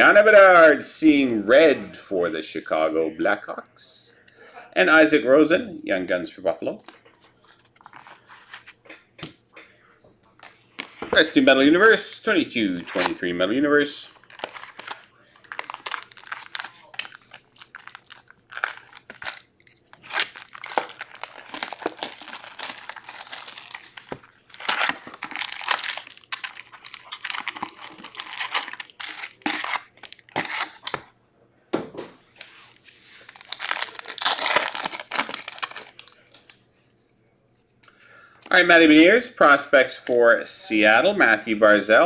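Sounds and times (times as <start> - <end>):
plastic and foil packs crinkling: 12.8 - 31.1, 32.4 - 36.7
foil wrapper tearing: 14.2 - 31.0, 32.4 - 36.6.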